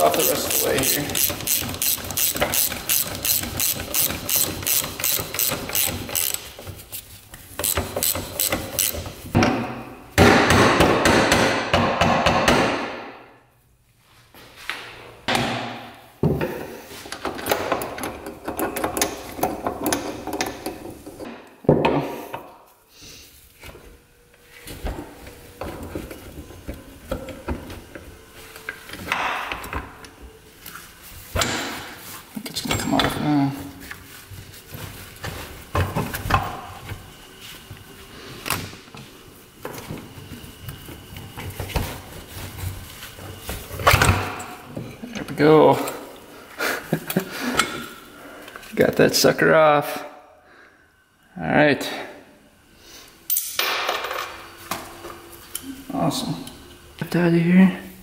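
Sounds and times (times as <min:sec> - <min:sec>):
ratchet wrench clicking: 0:00.0 - 0:06.5, 0:07.6 - 0:09.1.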